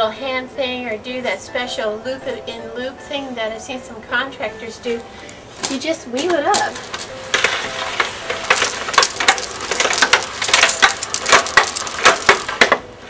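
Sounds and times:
hose reel rattling and clicking: 6.5 - 12.8.

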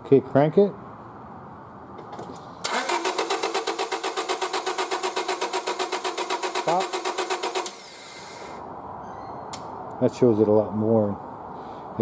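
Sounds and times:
engine cranking without starting: 2.6 - 8.6.

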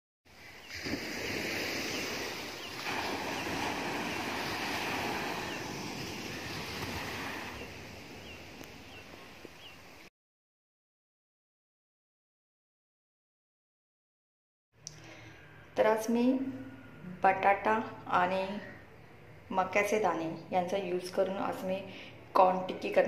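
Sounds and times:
wind: 0.3 - 10.1, 14.8 - 23.0
surf washing on a beach: 0.4 - 10.1.

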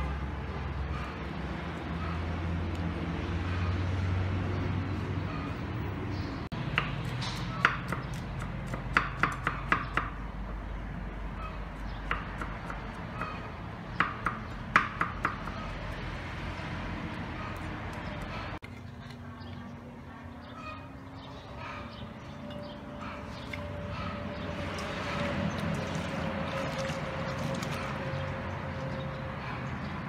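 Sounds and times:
cleaver chopping on wooden board: 6.7 - 10.2, 14.0 - 15.6.

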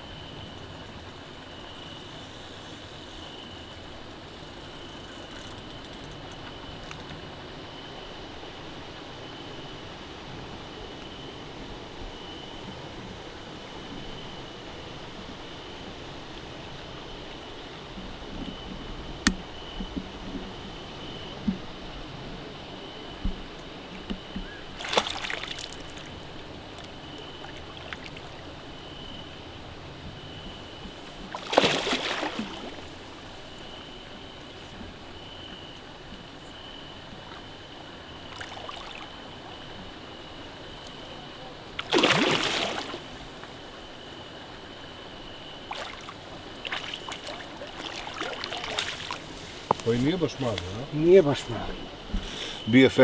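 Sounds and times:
insects trilling: 0.0 - 53.0
background hiss: 20.8 - 53.0
fish splashing at water surface: 24.8 - 26.2, 31.3 - 33.3, 41.8 - 43.4, 45.6 - 49.9.

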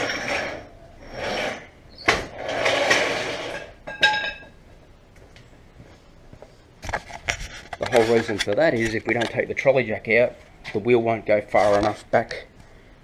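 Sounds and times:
trolley jack scraping on concrete: 0.0 - 4.0.

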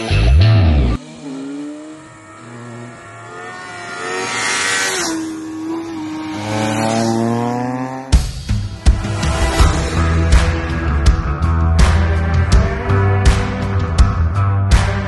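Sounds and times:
motorcycle passing close: 0.0 - 11.5
motorcycle engines revving: 0.0 - 14.2.

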